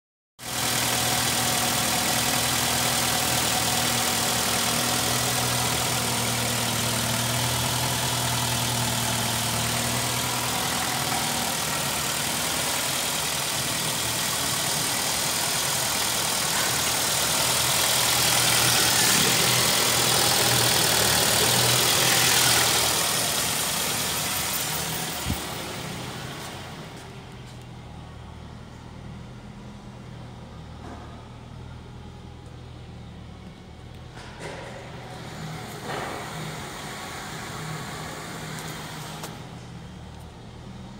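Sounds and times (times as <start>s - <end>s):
car engine idling: 0.4s - 30.7s.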